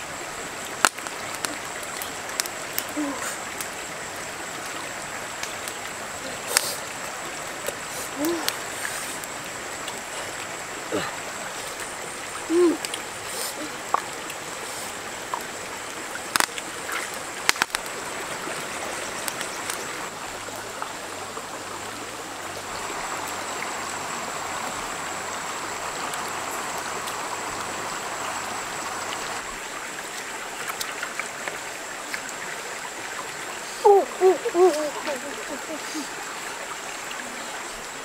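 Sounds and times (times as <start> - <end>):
stream running over rocks: 0.0 - 38.0.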